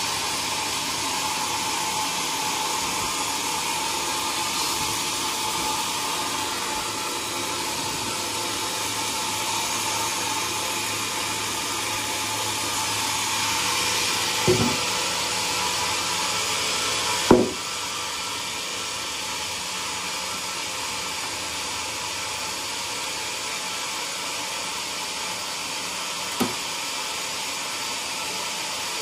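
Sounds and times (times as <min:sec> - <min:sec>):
band sawmill running: 0:00.0 - 0:29.0
sharp knocks: 0:14.5 - 0:14.8, 0:17.3 - 0:17.6.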